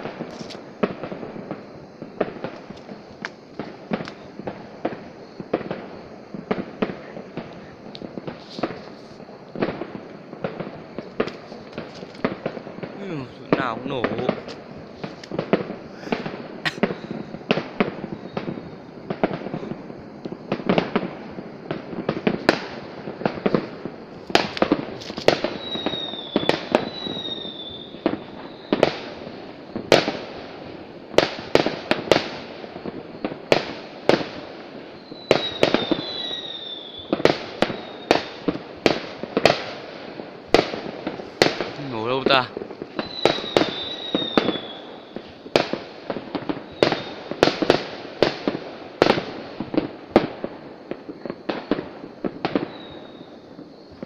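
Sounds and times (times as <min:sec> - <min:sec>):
fireworks bangs: 0:00.0 - 0:54.0
falling high whistle: 0:25.6 - 0:28.8, 0:35.0 - 0:38.4, 0:43.0 - 0:45.2, 0:52.7 - 0:54.0.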